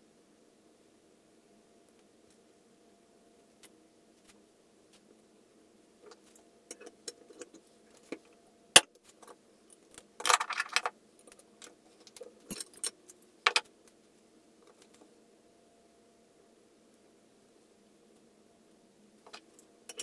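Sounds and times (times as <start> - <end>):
metal clicks and clinks: 19.3 - 20.0.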